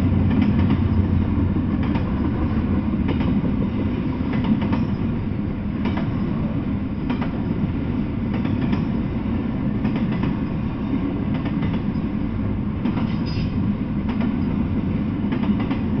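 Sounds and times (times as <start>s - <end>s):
train wheels rumbling on rail: 0.0s - 16.0s
wheels clicking over rail joints: 0.1s - 5.2s, 5.8s - 6.4s, 8.3s - 9.0s, 9.8s - 10.6s.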